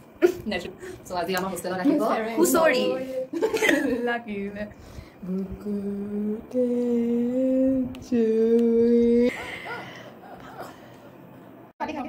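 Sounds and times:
woman singing long notes: 0:05.2 - 0:09.3
soft laughter: 0:09.3 - 0:10.9.

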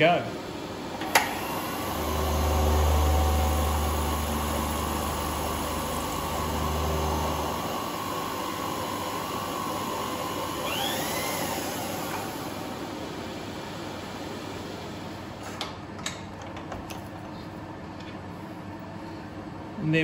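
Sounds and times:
thin machine whine: 0:00.0 - 0:15.4
milling machine hum: 0:00.4 - 0:19.7.

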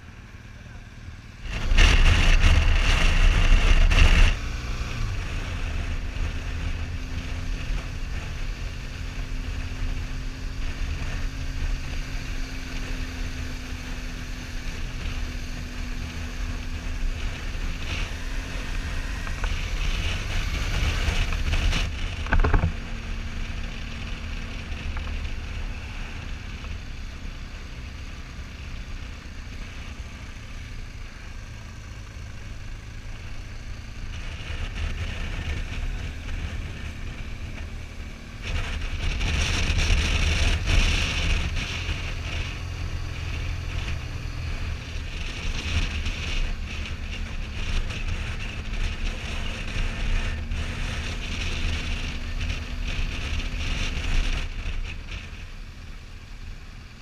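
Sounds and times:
motorcycle engine running: 0:00.0 - 0:57.0
wind noise on microphone: 0:01.4 - 0:28.4, 0:30.0 - 0:55.9.

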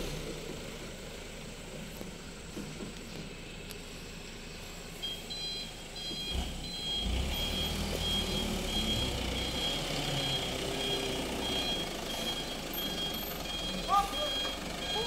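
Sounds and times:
diesel engine running: 0:00.0 - 0:15.0
truck reversing alarm beeping: 0:05.0 - 0:15.0.

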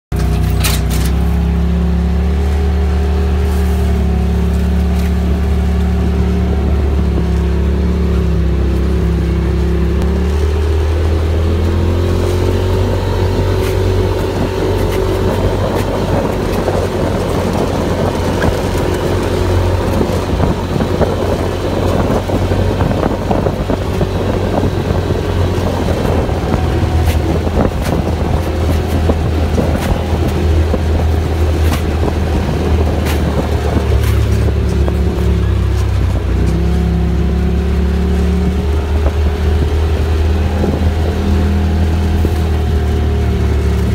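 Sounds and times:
vehicle engine running: 0:00.0 - 0:43.9
rattles over rough dirt trail: 0:00.1 - 0:43.9.

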